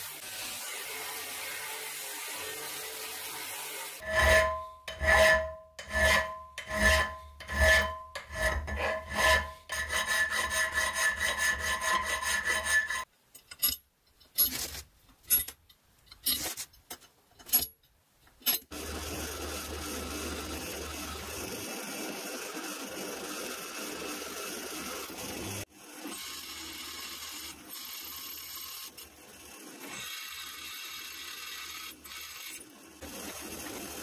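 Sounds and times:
file scraping steel: 0:03.9 - 0:16.7.

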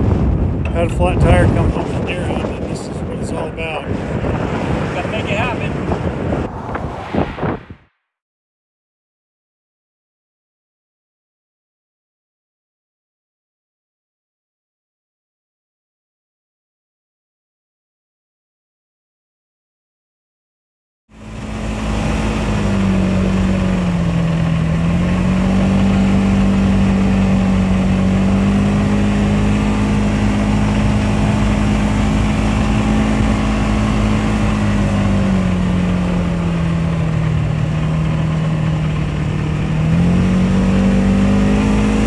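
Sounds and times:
road noise: 0:00.0 - 0:07.9, 0:21.1 - 0:42.0
vehicle engine running: 0:21.1 - 0:42.0.

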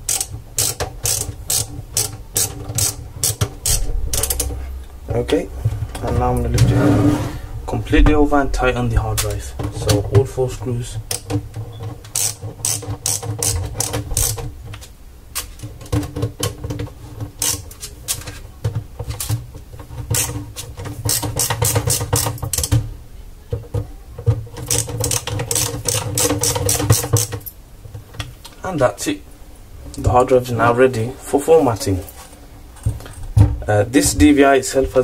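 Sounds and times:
screwdriver clicking and scraping: 0:11.1 - 0:14.4.

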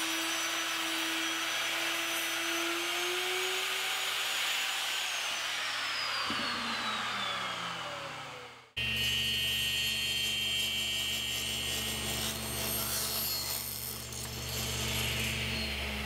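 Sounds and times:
table saw cutting wood: 0:00.0 - 0:16.0.

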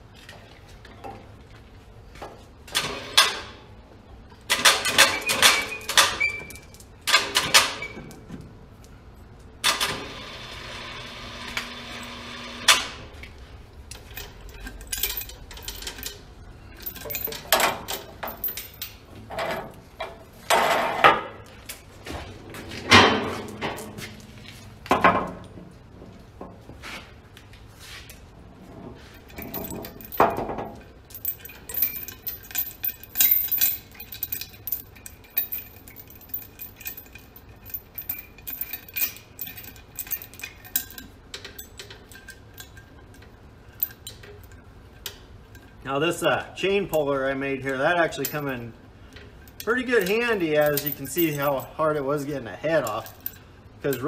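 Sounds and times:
chain clanking on metal: 0:04.5 - 0:08.2, 0:13.9 - 0:21.2, 0:29.0 - 0:45.8, 0:48.0 - 0:54.0.

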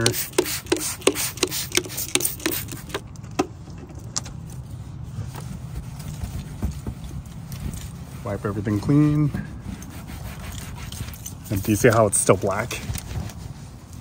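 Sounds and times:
spray bottle hissing: 0:00.0 - 0:03.0.

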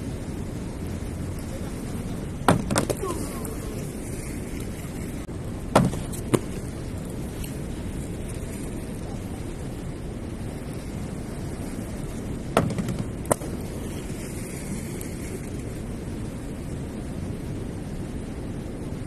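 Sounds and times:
outdoor noise: 0:00.0 - 0:19.0
inline skates knocking on wood: 0:02.5 - 0:03.0, 0:05.7 - 0:06.6.

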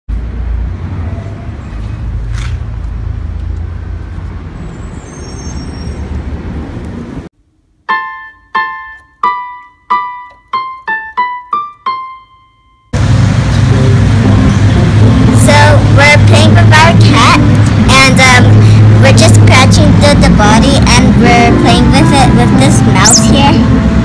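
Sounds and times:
keyboard jingle: 0:07.8 - 0:13.0, 0:20.8 - 0:24.0
low outdoor rumble: 0:13.0 - 0:24.0.

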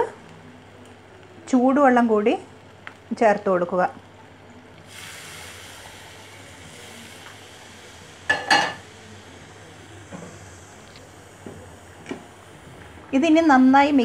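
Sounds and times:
hot water pouring into a pan: 0:04.8 - 0:11.9.

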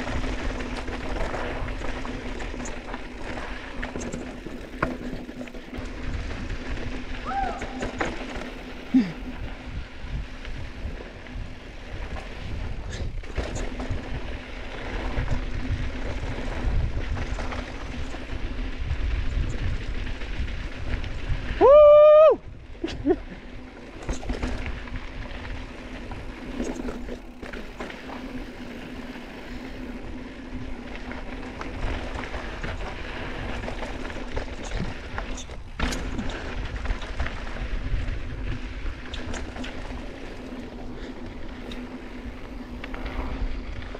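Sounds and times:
bike tyre and trail noise: 0:00.0 - 0:43.9
wind on microphone: 0:15.0 - 0:23.4.

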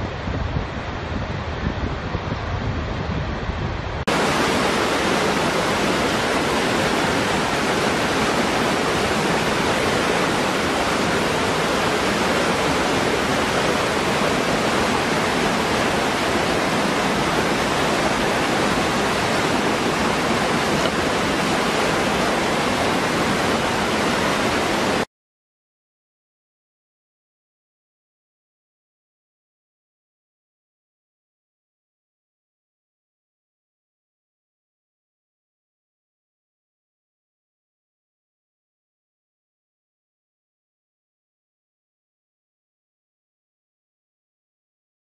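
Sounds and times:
waterfall rushing: 0:04.1 - 0:25.1.

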